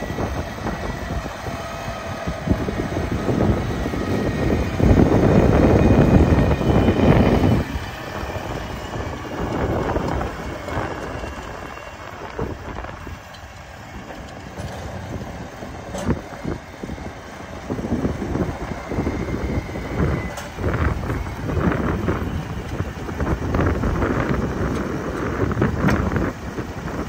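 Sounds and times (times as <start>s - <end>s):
tractor engine driving past: 0.0s - 27.0s.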